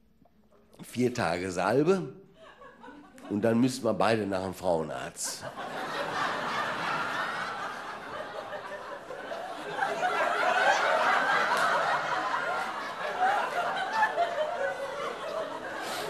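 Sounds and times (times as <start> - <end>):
audience laughing: 5.3 - 16.0.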